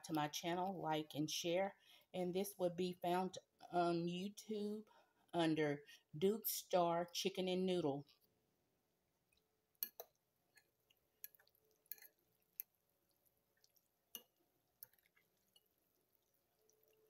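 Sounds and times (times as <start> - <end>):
soft wet squishes: 9.1 - 17.0.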